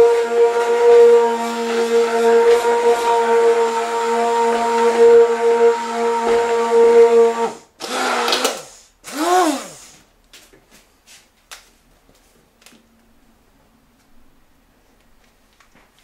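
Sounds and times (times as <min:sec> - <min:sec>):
stick blender motor whining: 0:00.0 - 0:09.9.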